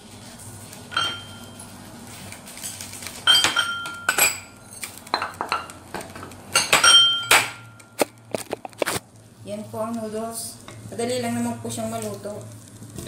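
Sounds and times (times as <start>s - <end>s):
metal cookware clinking: 0.9s - 1.6s, 3.3s - 4.6s, 6.5s - 7.8s.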